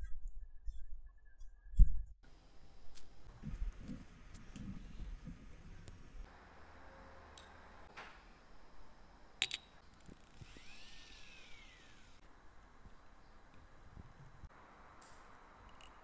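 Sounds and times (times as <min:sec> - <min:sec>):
thin rising and falling whistle: 0:10.5 - 0:12.2.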